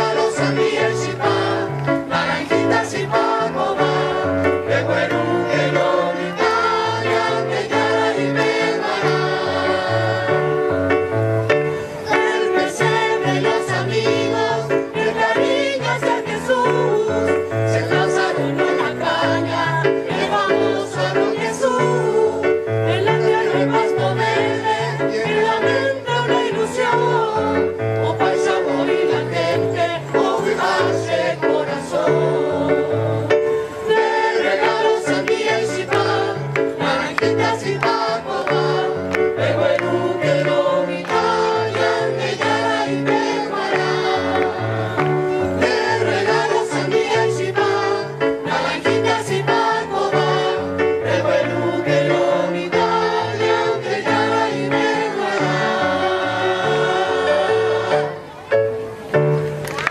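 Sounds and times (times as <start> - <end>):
choir singing: 0.0 - 58.4.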